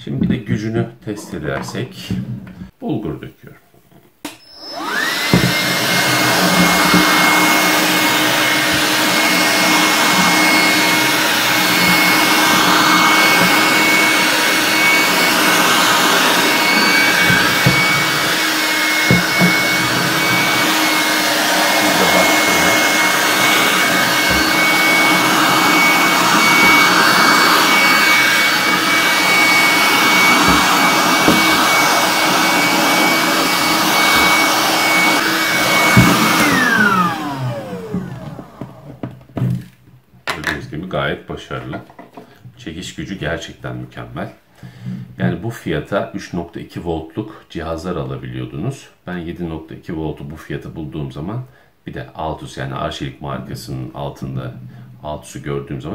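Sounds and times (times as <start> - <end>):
handheld vacuum cleaner running: 4.3 - 39.6.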